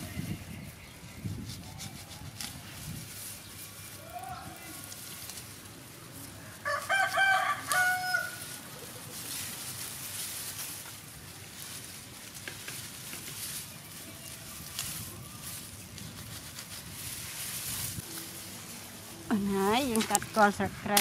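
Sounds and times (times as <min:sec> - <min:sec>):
leaves rustling: 0:00.0 - 0:21.0
rooster crowing: 0:06.6 - 0:08.5.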